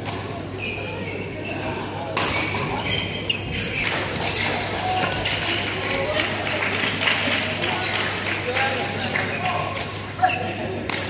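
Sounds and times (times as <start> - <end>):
murmur of voices in a hall: 0.0 - 11.0
shoes squeaking on court: 0.6 - 5.6, 9.0 - 10.8.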